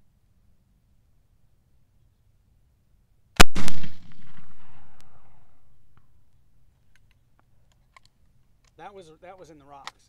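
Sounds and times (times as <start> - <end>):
gunshot echo: 3.4 - 6.0
rifle shot crack: 3.4 - 6.0.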